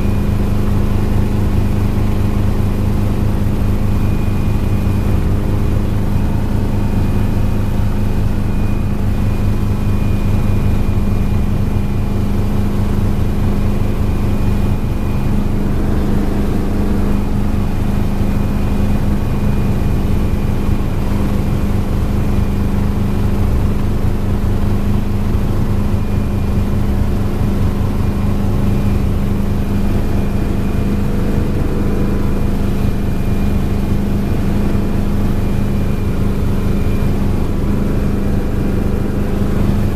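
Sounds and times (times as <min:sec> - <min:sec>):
helicopter engine and rotor: 0:00.0 - 0:39.9
high whine: 0:12.8 - 0:23.3, 0:24.1 - 0:39.9.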